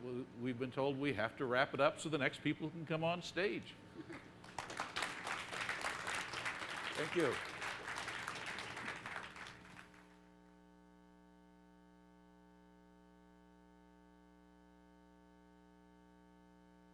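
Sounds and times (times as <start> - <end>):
electrical mains hum: 0.0 - 16.9
audience applause: 4.4 - 10.1.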